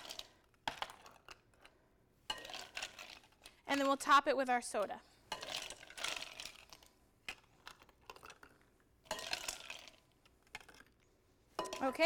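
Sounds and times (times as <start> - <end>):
ice cubes rattling: 5.4 - 12.0.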